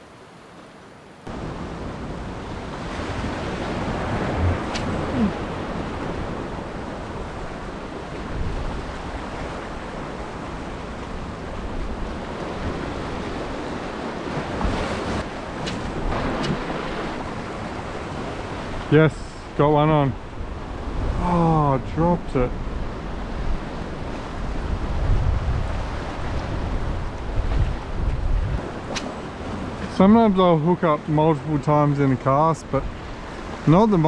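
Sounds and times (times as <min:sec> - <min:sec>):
wind buffeting microphone: 0:01.3 - 0:18.9, 0:21.8 - 0:30.1
sea washing over rocks: 0:02.6 - 0:11.4, 0:12.2 - 0:19.0.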